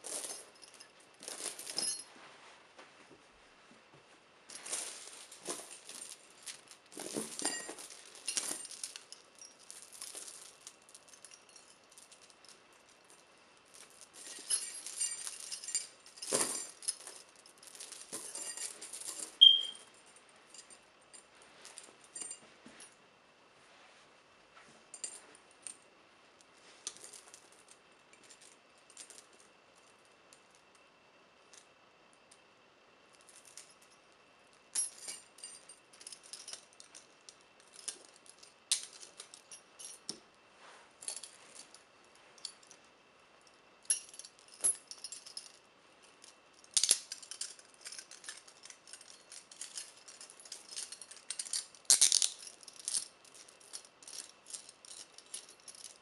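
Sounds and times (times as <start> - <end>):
chains and handcuffs clinking: 0.0 - 2.1, 4.5 - 22.9, 24.9 - 25.8, 33.1 - 40.2, 41.0 - 56.0.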